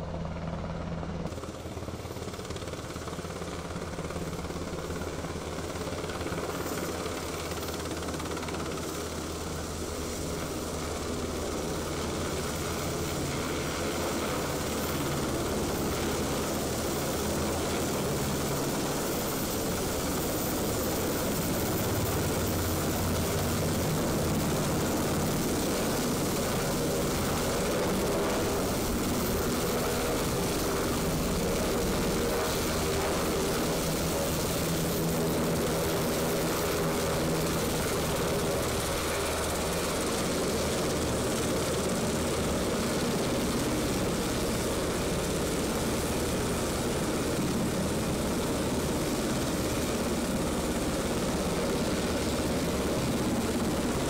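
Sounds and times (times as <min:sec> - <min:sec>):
helicopter rotors and engines: 0:00.0 - 0:54.0.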